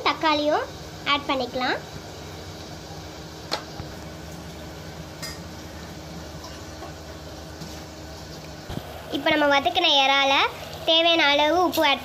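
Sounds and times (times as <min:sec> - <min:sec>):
clink against steel bowl: 0:05.2 - 0:05.4.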